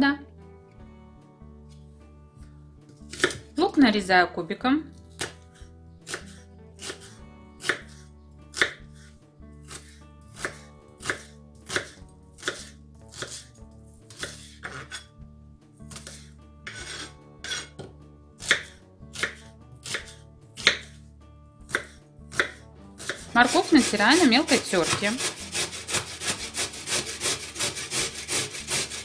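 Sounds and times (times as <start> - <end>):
knife chopping on wooden board: 3.0 - 3.5, 5.1 - 13.5, 14.1 - 15.1, 15.9 - 21.0, 21.6 - 29.0.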